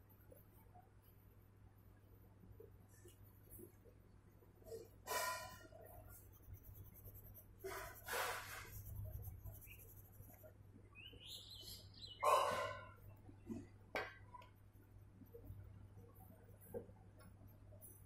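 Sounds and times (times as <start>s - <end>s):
high bird chirps: 10.9s - 12.5s
birds calling: 10.9s - 13.0s.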